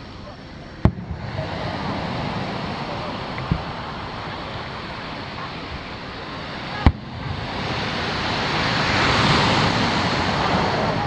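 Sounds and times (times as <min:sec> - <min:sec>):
surf on the beach: 0:00.0 - 0:11.0
firework boom: 0:00.8 - 0:08.7.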